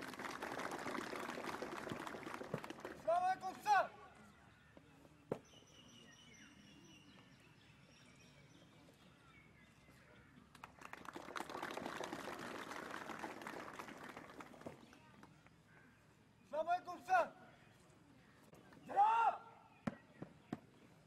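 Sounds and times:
crowd applauding: 0.0s - 3.1s, 10.6s - 14.8s
faint high bird chirping: 4.1s - 10.4s.

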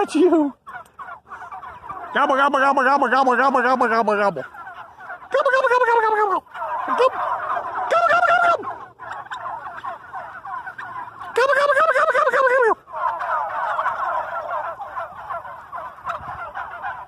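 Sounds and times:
turkeys calling: 0.0s - 17.0s
turkeys gobbling: 0.0s - 17.0s.

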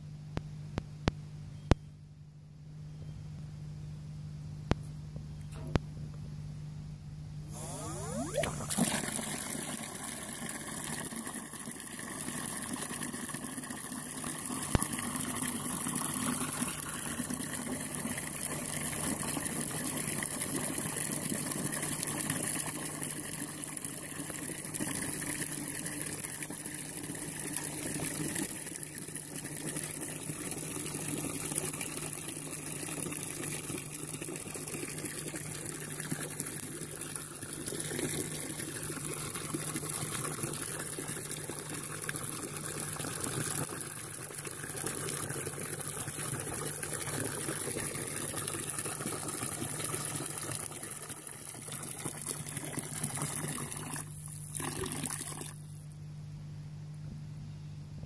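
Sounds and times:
water pouring into plastic bucket: 7.6s - 55.9s.

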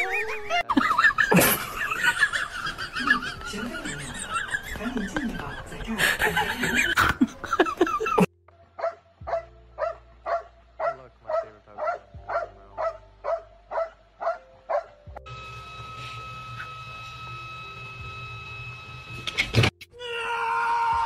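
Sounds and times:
dog barking: 8.8s - 15.0s.

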